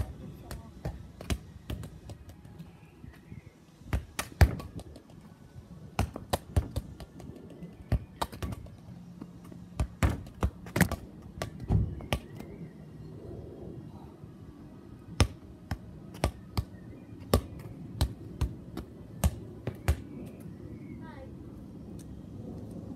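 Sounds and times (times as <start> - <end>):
football kicked on concrete: 5.9 - 7.3, 9.8 - 12.4.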